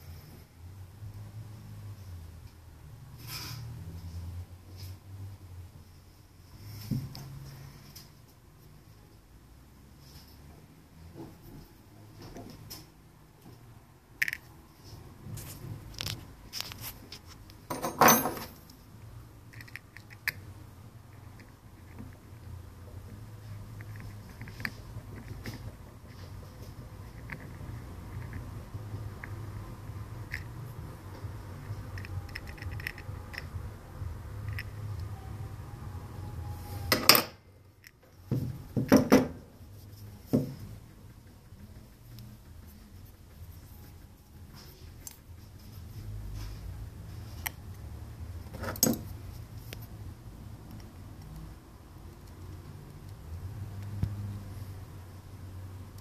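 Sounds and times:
metal knocks on workbench: 0:17.7 - 0:18.5
metal tools rattling clatter: 0:17.7 - 0:18.6
metal parts clicking and scraping: 0:31.6 - 0:33.5.

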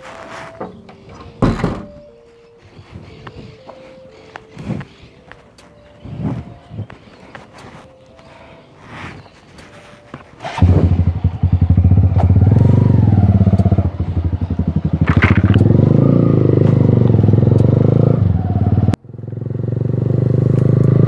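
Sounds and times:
motorcycle engine revving: 0:10.3 - 0:21.0.

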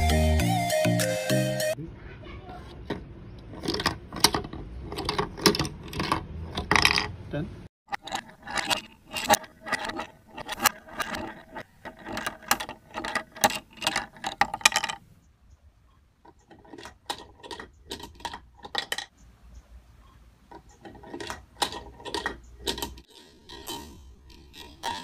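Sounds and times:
wooden toy clacking down ladder: 0:02.7 - 0:07.2, 0:07.9 - 0:15.0, 0:16.2 - 0:19.1, 0:20.5 - 0:25.0.

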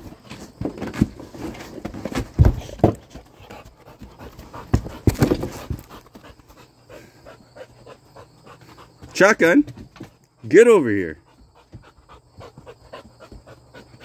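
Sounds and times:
paws thumping on wooden boards: 0:00.3 - 0:10.4, 0:11.2 - 0:14.0
dog panting: 0:03.2 - 0:09.2, 0:11.2 - 0:14.0.

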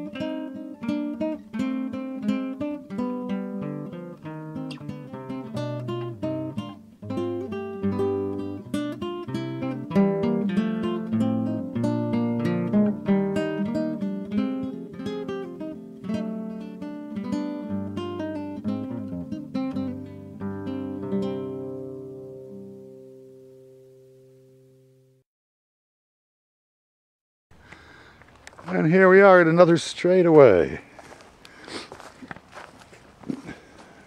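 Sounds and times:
acoustic guitar music: 0:00.0 - 0:25.2.

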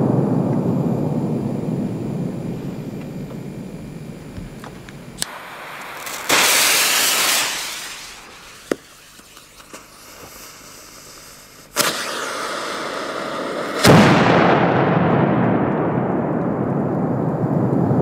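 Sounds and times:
firecracker fuses fizzing: 0:04.6 - 0:14.3.

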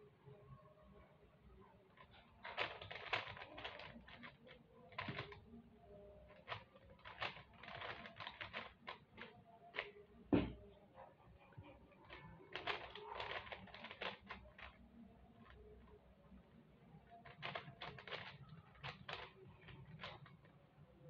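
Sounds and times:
puzzle cube clicking: 0:02.0 - 0:05.6, 0:06.3 - 0:10.0, 0:12.0 - 0:16.0, 0:17.0 - 0:20.6
heavy thump: 0:10.3 - 0:10.6.

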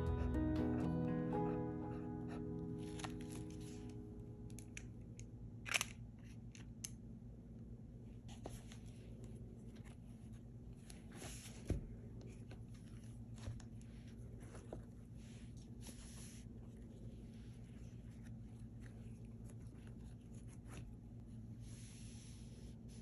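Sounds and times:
journal pages rustling and clicking: 0:02.8 - 0:03.9, 0:08.3 - 0:17.0
book closing thump: 0:11.6 - 0:11.9.

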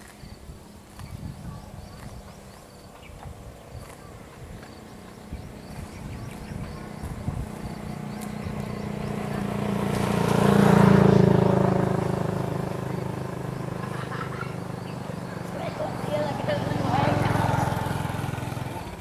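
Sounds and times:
vehicle engine passing by: 0:00.8 - 0:19.0.

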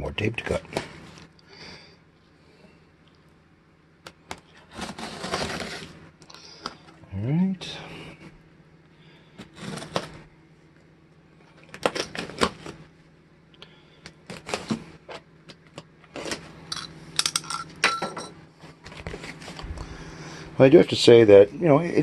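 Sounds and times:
steady low hum: 0:00.0 - 0:22.0
box cutter slicing tape: 0:04.7 - 0:05.9.

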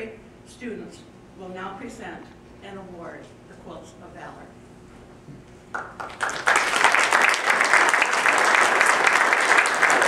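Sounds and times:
audience applauding: 0:05.7 - 0:10.0.

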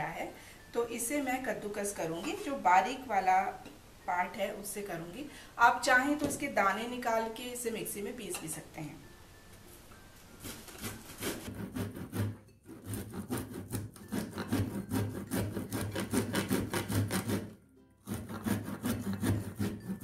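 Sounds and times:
corn rasping on metal grater: 0:10.8 - 0:20.0.

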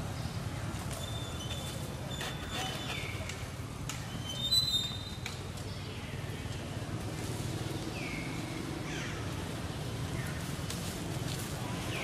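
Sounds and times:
monkeys squeaking: 0:01.0 - 0:03.3, 0:04.1 - 0:05.2.

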